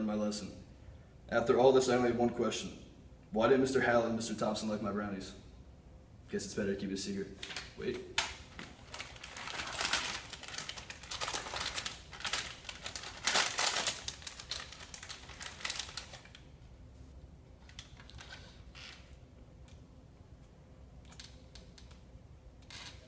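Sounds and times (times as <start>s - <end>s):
wrapper crinkling and rustling: 7.4s - 16.5s, 17.6s - 19.0s.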